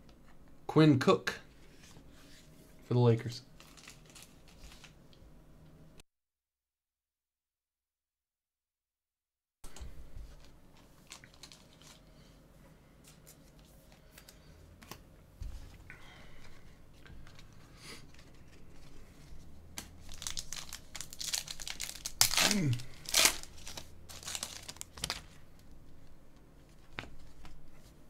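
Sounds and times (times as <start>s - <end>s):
foil wrapper crinkling: 3.6s - 5.0s, 10.3s - 12.1s, 17.2s - 25.6s
pack tearing open: 3.6s - 5.0s, 11.0s - 12.0s, 20.0s - 25.3s.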